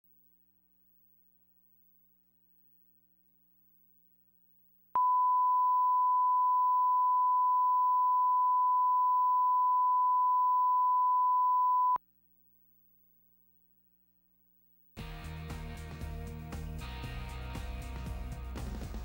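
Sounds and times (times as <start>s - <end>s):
pure test tone: 5.0s - 12.0s.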